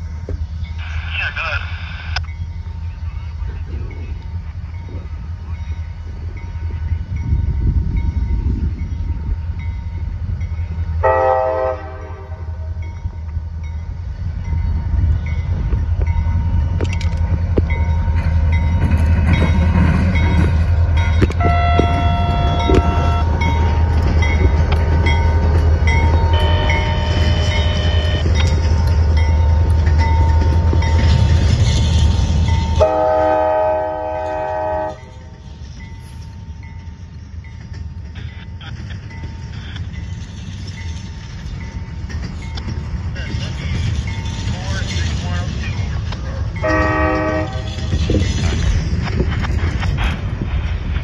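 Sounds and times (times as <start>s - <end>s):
diesel locomotive engine rumble: 0.0s - 51.0s
locomotive air horn: 11.0s - 12.7s, 21.4s - 23.4s, 32.8s - 35.1s, 46.6s - 47.7s.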